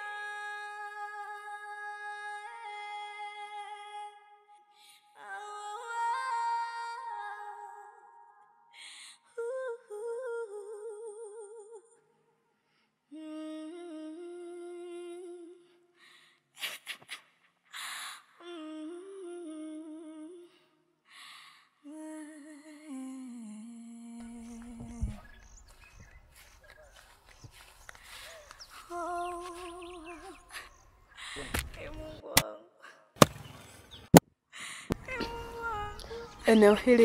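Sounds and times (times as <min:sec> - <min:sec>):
person humming mournful melody: 0:13.1 - 0:15.8, 0:18.4 - 0:20.7, 0:28.3 - 0:30.7, 0:35.0 - 0:36.5.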